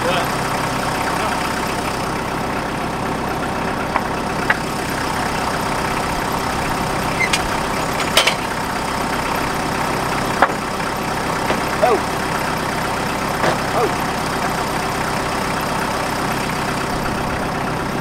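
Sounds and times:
engine idling: 0.0 - 18.0
wooden boards knocking: 10.4 - 10.7, 11.4 - 11.8, 13.4 - 13.7.

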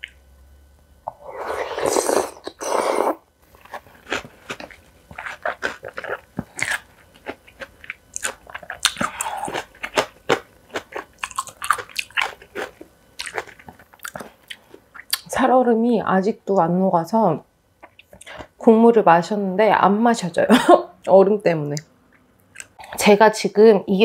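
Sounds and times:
crunching bites and chewing: 1.5 - 15.3.

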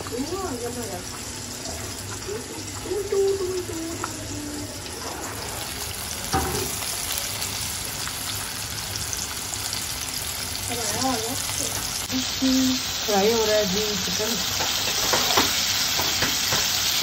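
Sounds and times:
chicken deep-frying in oil: 0.0 - 17.0.

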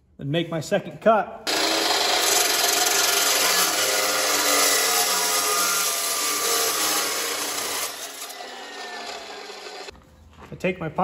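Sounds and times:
chop saw cutting steel pipe: 1.5 - 9.9.

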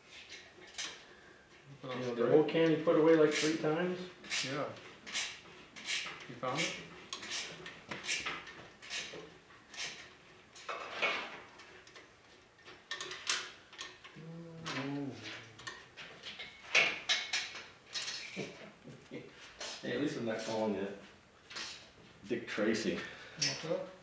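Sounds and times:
metal clinks and scrapes: 15.2 - 18.6.

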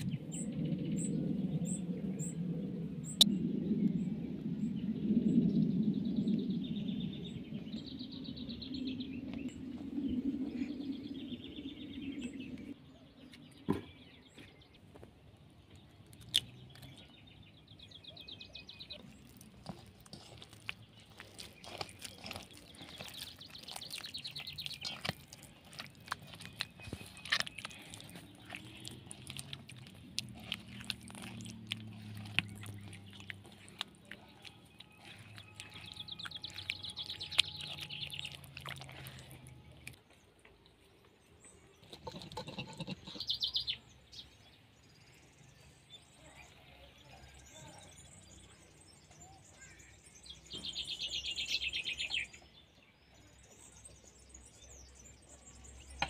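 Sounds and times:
songbirds chirping and trilling: 0.0 - 56.0
hand mixing dough in clay bowl: 18.5 - 40.1.

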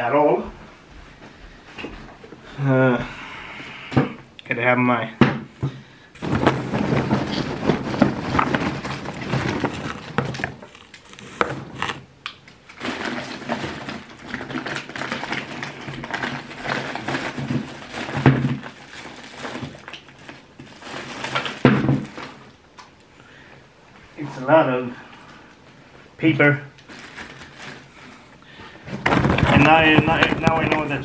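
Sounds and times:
packing paper rustling and crumpling: 6.2 - 22.5, 26.8 - 31.0.

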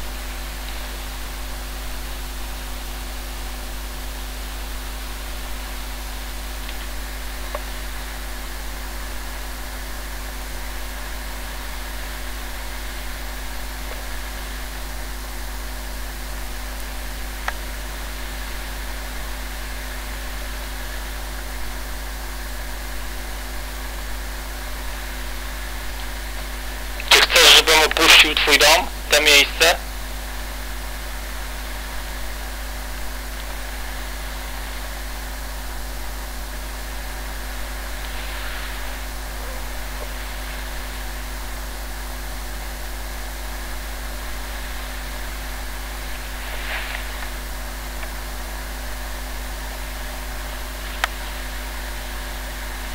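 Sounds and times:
low constant hum: 22.6 - 42.0
steady hiss: 24.7 - 29.8, 31.1 - 41.9, 43.2 - 49.2.

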